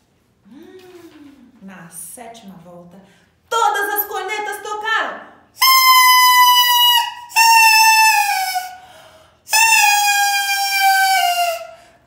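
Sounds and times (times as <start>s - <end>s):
plastic toy horn blasts: 5.6s - 8.7s, 9.5s - 11.6s.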